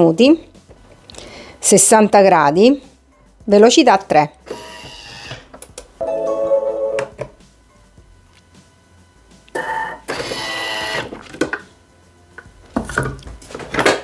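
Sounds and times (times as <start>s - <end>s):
noisy mechanical sound: 7.2s - 14.0s
kitchen machine motor whirring: 9.5s - 11.2s.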